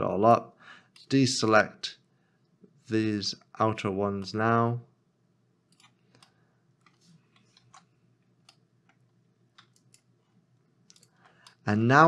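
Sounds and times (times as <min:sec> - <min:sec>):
computer mouse clicks: 0:05.7 - 0:10.2, 0:10.8 - 0:11.6.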